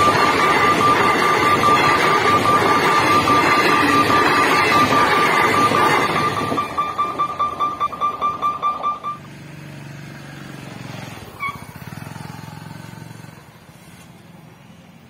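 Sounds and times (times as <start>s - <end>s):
level crossing warning bell: 0.0s - 9.4s
engines idling: 0.0s - 15.0s.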